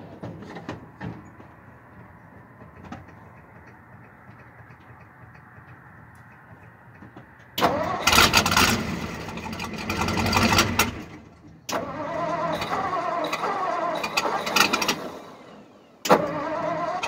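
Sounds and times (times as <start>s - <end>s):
truck engine starting and running: 0.0s - 17.0s.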